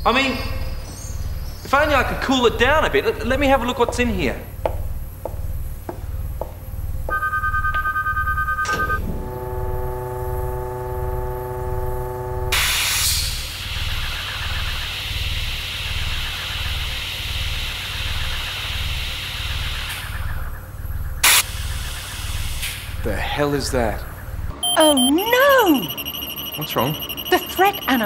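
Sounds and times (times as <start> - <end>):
low pulsing throb: 9.0 - 12.6
steady chord of electronic tones: 9.1 - 12.6, 24.6 - 28.0
high electronic beeping: 24.6 - 28.0.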